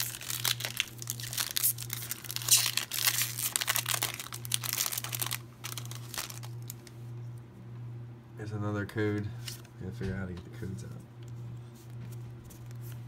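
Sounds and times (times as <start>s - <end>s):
foil wrapper crinkling and tearing: 0.0s - 6.9s.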